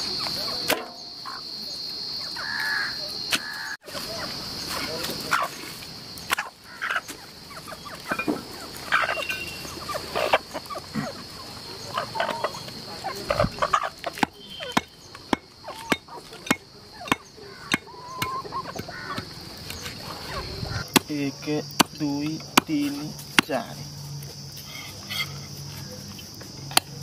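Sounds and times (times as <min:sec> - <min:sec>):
bird calls: 0:00.0 - 0:26.2
cleaver striking wooden block: 0:14.1 - 0:19.3, 0:20.9 - 0:21.2, 0:21.8 - 0:23.5.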